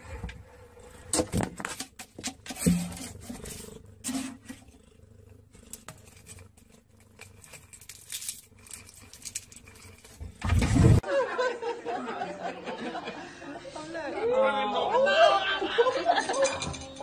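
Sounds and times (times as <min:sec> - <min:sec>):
cat scratching and rustling: 0:01.5 - 0:10.5.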